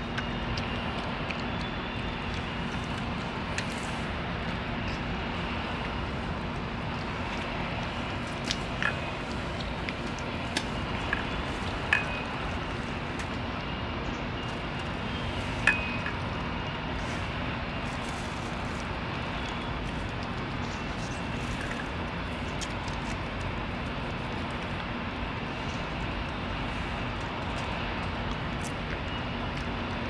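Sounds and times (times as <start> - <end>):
cat chewing and licking: 0.0 - 13.5.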